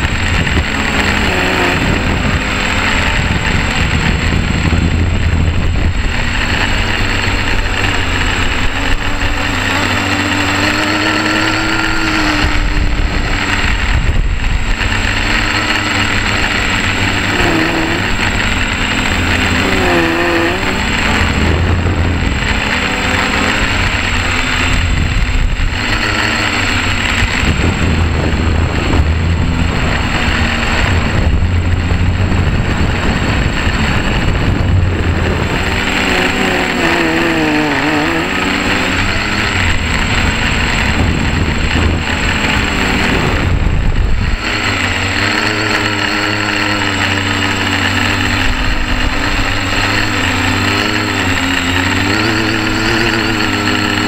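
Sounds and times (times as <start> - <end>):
quadcopter buzzing whine: 0.0 - 54.0
low rumble: 20.6 - 25.8.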